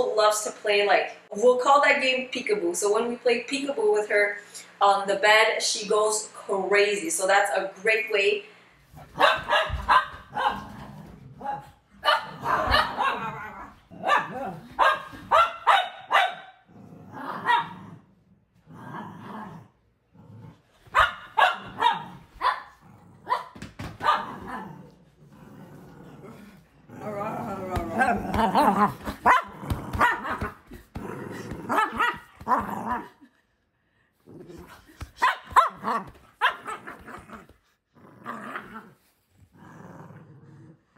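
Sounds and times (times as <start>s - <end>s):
dogs barking excitedly: 9.0s - 10.8s, 11.6s - 16.7s, 17.3s - 17.8s, 20.8s - 24.6s, 28.0s - 33.1s, 35.0s - 37.5s.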